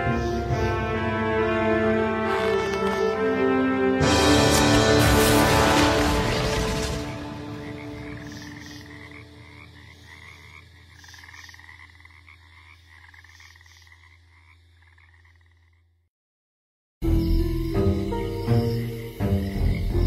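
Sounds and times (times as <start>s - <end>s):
frogs croaking in trills: 0.0s - 1.0s, 7.2s - 16.0s, 17.0s - 20.0s.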